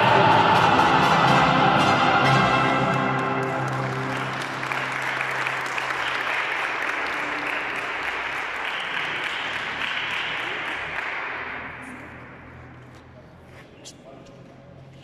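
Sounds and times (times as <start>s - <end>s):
mariachi song: 0.0s - 5.6s
crowd clapping: 2.4s - 12.0s.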